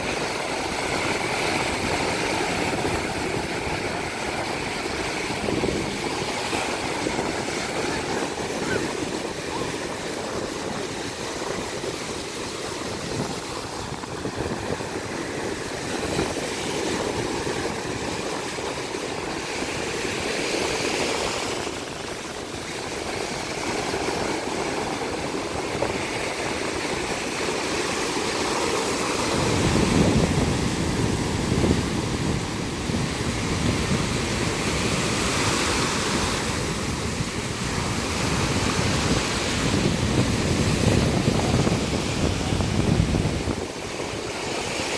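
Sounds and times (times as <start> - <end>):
waves washing on sandy shore: 0.0 - 44.9.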